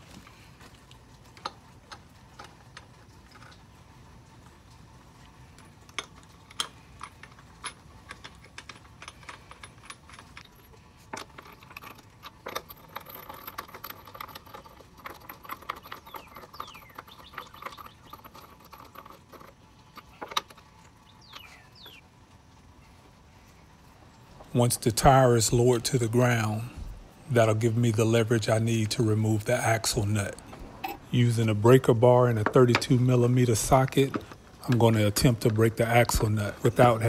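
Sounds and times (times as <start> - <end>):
lug nuts clinking: 5.6 - 22.0, 27.5 - 37.0.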